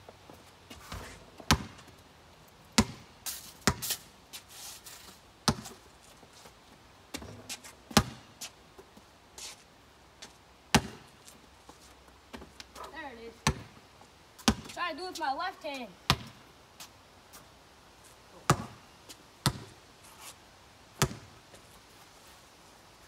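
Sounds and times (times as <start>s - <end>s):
basketball bouncing: 0.9s - 1.9s, 2.8s - 3.0s, 3.6s - 3.9s, 5.4s - 5.8s, 7.1s - 8.3s, 10.7s - 11.1s, 13.4s - 13.8s, 14.4s - 14.8s, 16.1s - 16.4s, 18.5s - 18.8s, 19.4s - 19.7s, 21.0s - 21.3s
ball hitting backboard: 18.5s - 18.8s, 21.0s - 21.3s.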